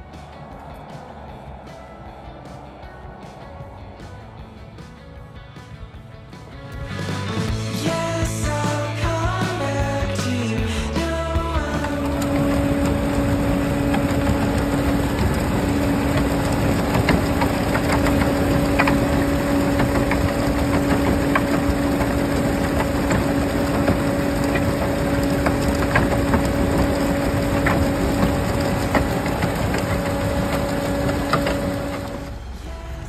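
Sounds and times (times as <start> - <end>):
truck engine humming: 0.0 - 33.0
wet concrete sliding down chute: 6.9 - 32.8.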